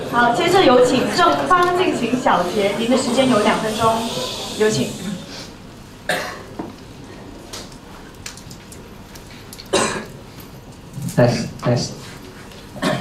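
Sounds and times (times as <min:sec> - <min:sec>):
person coughing: 0:06.1 - 0:06.6, 0:09.7 - 0:10.1, 0:12.8 - 0:13.0.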